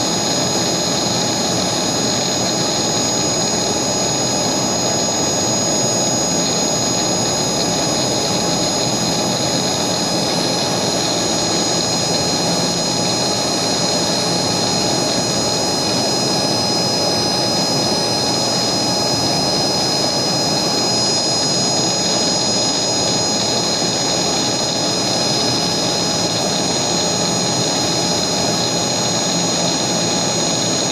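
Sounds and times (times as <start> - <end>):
engraving machine spindle whine: 0.0 - 30.9.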